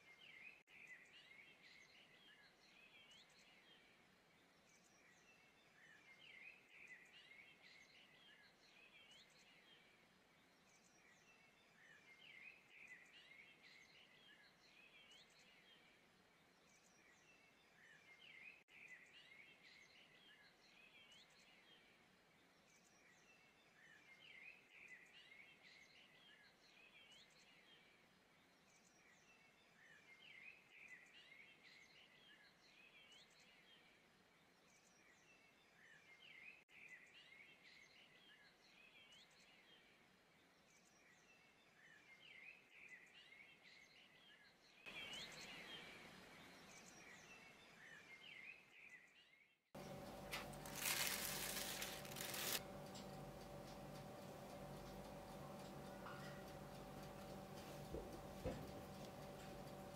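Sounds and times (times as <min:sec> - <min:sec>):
faint bird chirping: 0:00.0 - 0:59.9
low steady hiss: 0:44.9 - 0:48.5.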